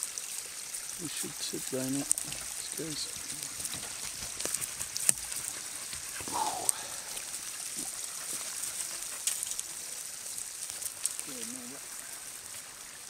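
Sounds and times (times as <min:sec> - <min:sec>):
stream water rushing: 0:00.0 - 0:13.0.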